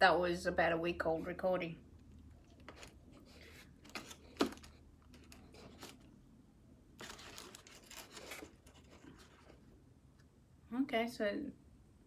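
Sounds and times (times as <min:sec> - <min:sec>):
crinkling: 0:02.0 - 0:06.2, 0:06.9 - 0:09.8.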